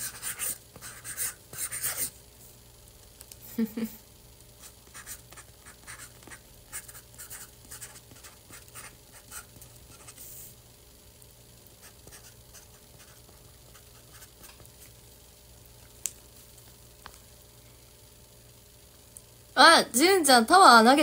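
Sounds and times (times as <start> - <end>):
marker scratching on cardboard: 0.0 - 2.1, 4.6 - 10.2, 11.8 - 14.5.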